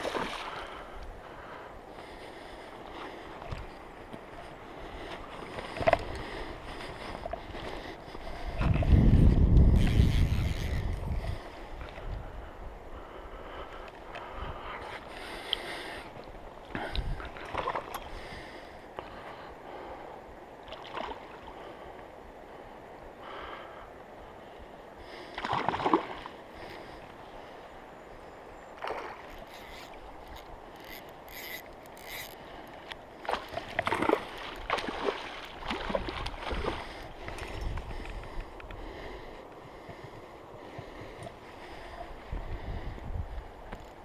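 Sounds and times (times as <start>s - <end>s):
flowing river water: 0.0s - 44.0s.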